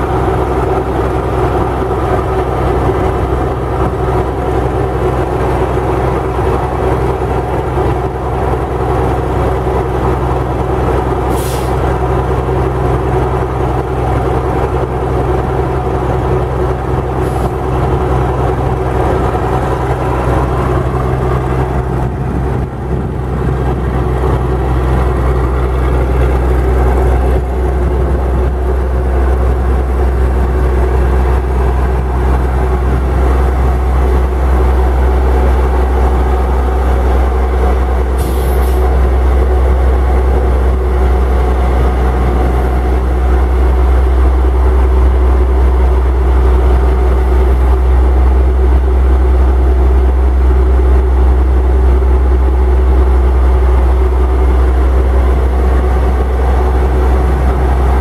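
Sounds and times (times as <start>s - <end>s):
diesel engine running: 0.0s - 58.0s
short hiss of air: 11.3s - 11.8s, 38.2s - 38.9s.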